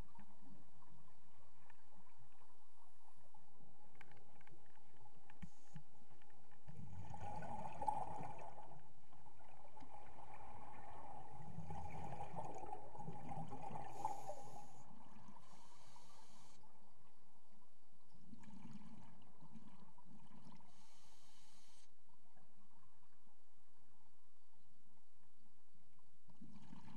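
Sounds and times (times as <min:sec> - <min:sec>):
faint steady hiss: 0:00.0 - 0:26.9
gurgling underwater bubbles: 0:06.8 - 0:08.8, 0:09.4 - 0:15.4.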